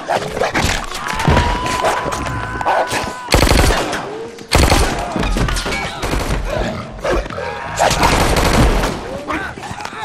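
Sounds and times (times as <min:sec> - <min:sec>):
rapid gunfire: 0:03.3 - 0:03.9, 0:04.5 - 0:05.1, 0:08.0 - 0:09.0.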